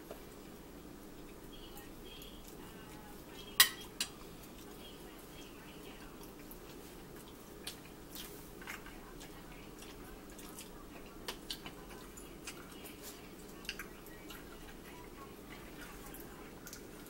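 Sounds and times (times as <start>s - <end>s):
low room hum: 0.0s - 17.0s
eating smacks: 6.0s - 15.0s, 15.6s - 17.0s.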